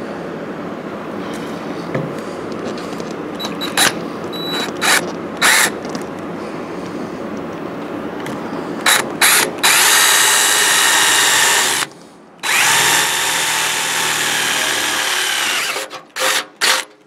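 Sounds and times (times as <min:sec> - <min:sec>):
cordless drill boring through sheet metal: 0:04.8 - 0:05.7, 0:08.9 - 0:16.9.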